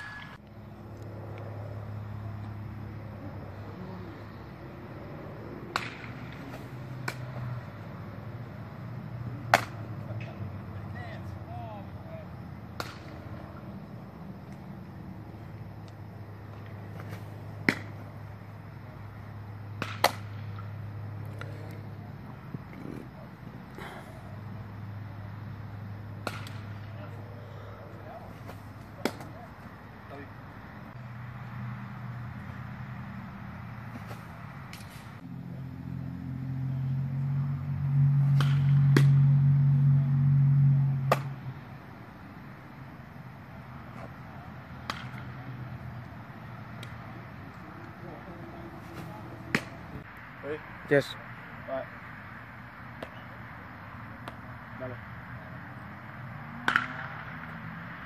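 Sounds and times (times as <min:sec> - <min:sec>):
steady low hum: 0:00.0 - 0:57.2
baseball smacking into glove: 0:05.6 - 0:07.4, 0:12.8 - 0:13.2, 0:16.9 - 0:18.0, 0:19.8 - 0:20.7, 0:26.2 - 0:26.8, 0:28.3 - 0:29.4, 0:41.1 - 0:41.3, 0:44.8 - 0:45.3, 0:48.9 - 0:49.8, 0:56.6 - 0:57.2.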